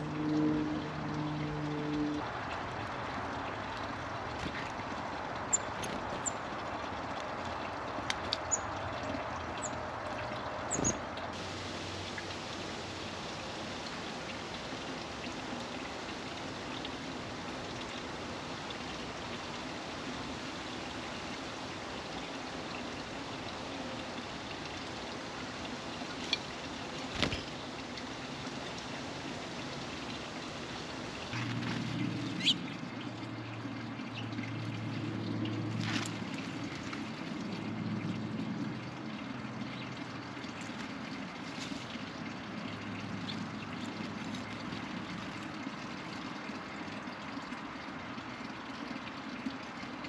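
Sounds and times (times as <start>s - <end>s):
low motor hum: 0.0s - 19.6s
outdoor background hiss: 0.0s - 50.0s.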